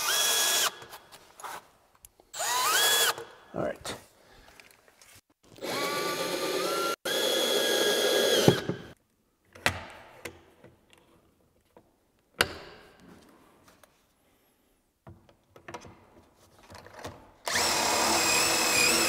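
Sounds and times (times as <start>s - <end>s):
cordless drill running: 0.0s - 0.8s, 2.4s - 3.2s, 5.6s - 8.7s, 17.5s - 19.0s.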